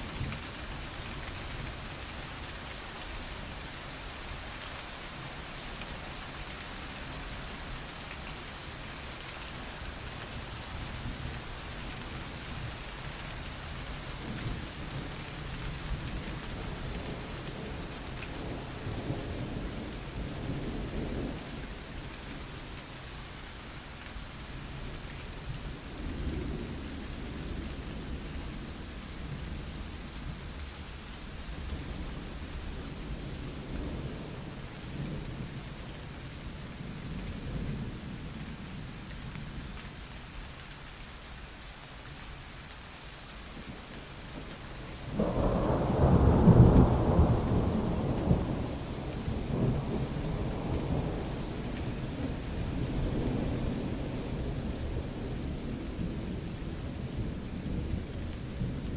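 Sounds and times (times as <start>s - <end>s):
thunder rumbling: 45.0s - 58.9s.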